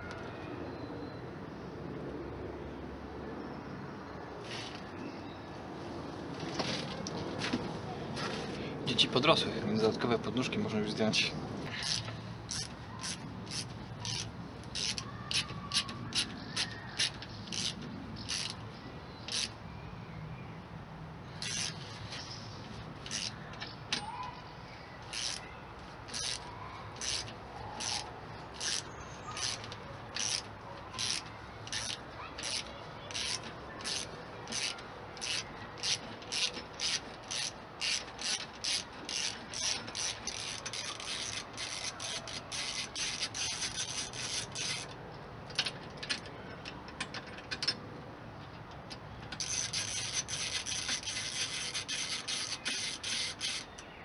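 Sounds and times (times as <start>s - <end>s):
ratchet wrench clicking: 11.8s - 18.6s, 19.3s - 19.6s, 21.4s - 21.8s, 23.0s - 24.1s, 25.1s - 25.4s, 26.1s - 47.8s, 48.9s - 53.9s.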